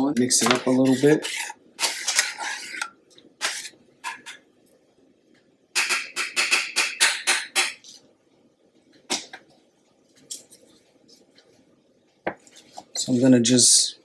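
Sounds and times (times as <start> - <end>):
utensil scraping saucepan: 0.2 - 4.4.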